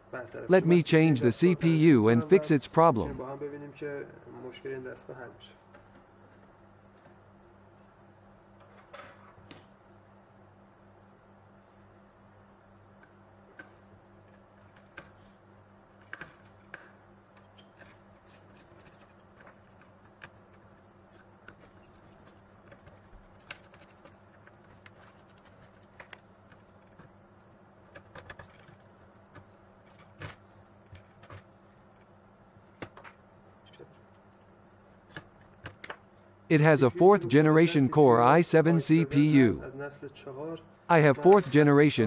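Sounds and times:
low steady hum: 0.0 - 42.0.

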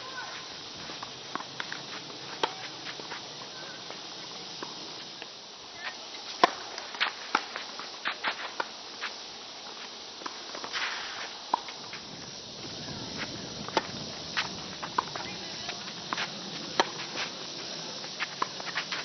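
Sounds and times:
shoes scuffing on court: 0.0 - 19.0
steady hiss: 0.0 - 19.0
racquets striking tennis ball: 1.0 - 3.2, 6.3 - 8.7, 13.2 - 19.0.

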